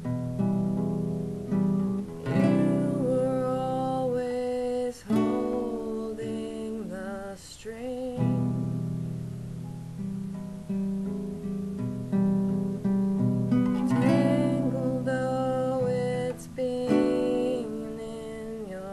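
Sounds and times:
classical guitar chords: 0.0s - 18.9s
woman singing: 2.2s - 8.9s, 13.8s - 18.9s.

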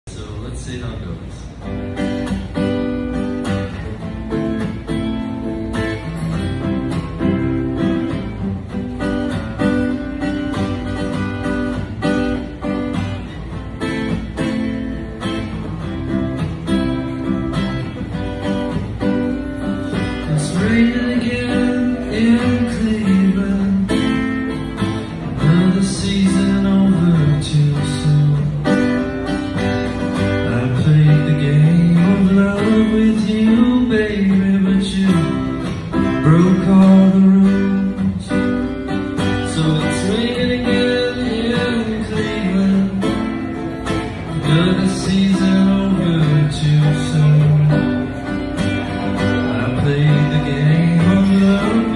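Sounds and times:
strummed guitar: 0.0s - 51.9s
man singing: 19.9s - 29.0s, 30.2s - 51.9s.

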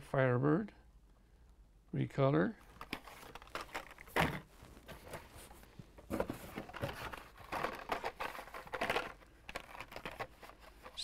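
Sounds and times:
plastic blister cards rustling: 2.6s - 11.0s.

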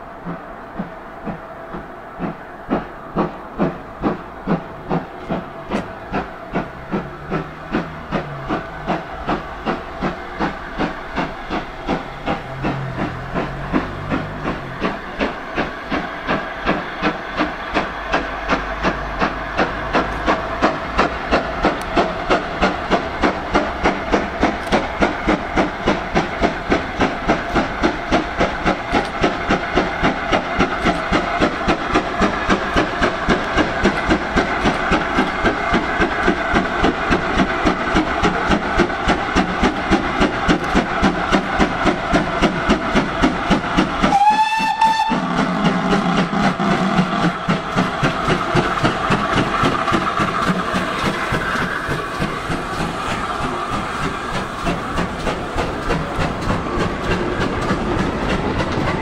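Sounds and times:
steam engine exhaust beating: 0.0s - 59.0s
train wheels clattering on rail: 0.0s - 59.0s
steam whistle blast: 44.0s - 45.9s.

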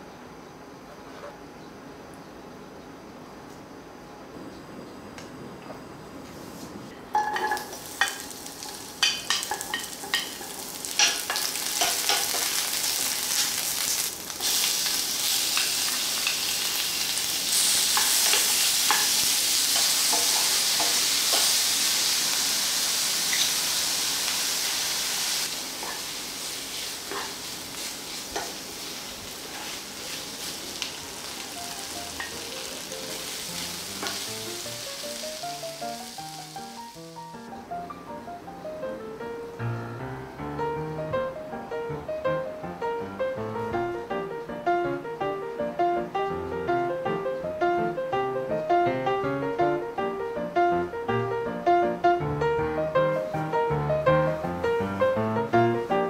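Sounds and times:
food sizzling in a frying pan: 7.2s - 37.5s.

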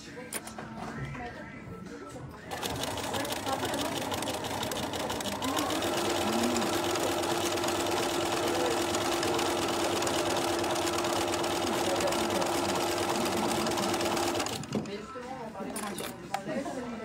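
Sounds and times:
sewing machine stitching: 2.5s - 14.9s.

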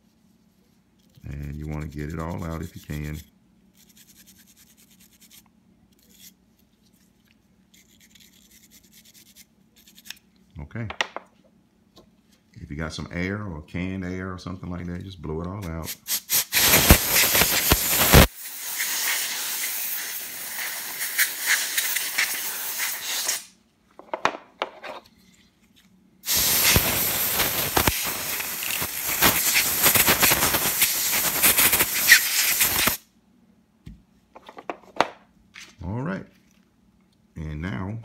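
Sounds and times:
compressed air hissing: 15.9s - 23.5s, 26.2s - 33.0s.

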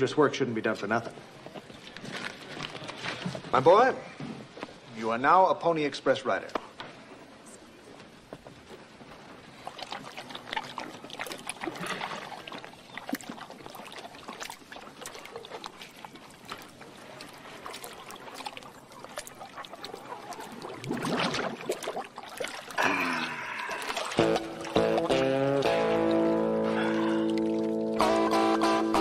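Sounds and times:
water splashing and trickling: 8.7s - 29.0s.

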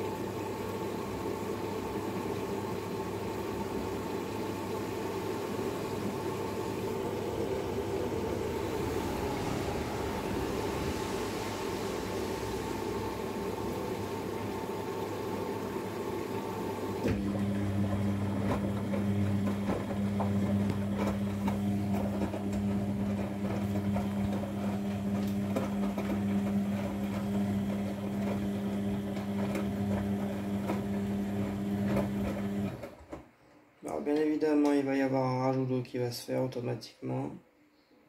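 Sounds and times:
washing machine hiss and whine: 0.0s - 33.4s
drum motor humming: 1.2s - 32.8s
wet laundry swishing in drum: 5.4s - 15.1s, 17.8s - 32.9s.

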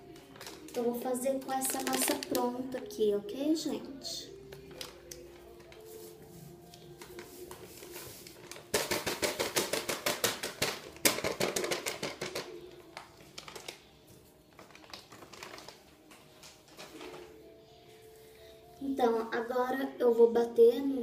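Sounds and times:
powder shaken from plastic packet: 0.0s - 2.6s, 4.6s - 17.3s.

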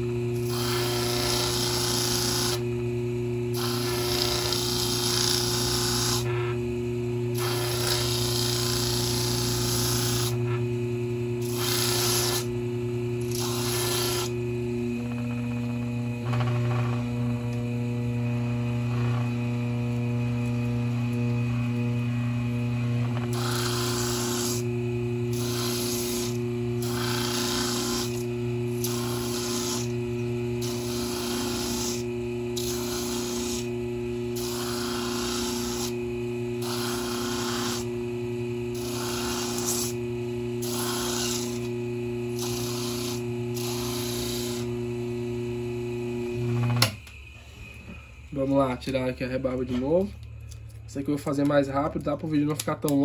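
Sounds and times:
electric motor hum: 0.0s - 53.0s
grinding rasp on plastic: 0.4s - 2.6s, 3.5s - 6.6s, 7.3s - 10.7s, 11.4s - 12.5s, 13.2s - 14.4s, 15.0s - 17.3s, 18.8s - 19.4s, 22.1s - 24.7s, 25.3s - 30.0s, 30.6s - 36.0s, 36.6s - 37.9s, 38.7s - 40.0s, 40.6s - 41.7s, 42.3s - 44.7s.

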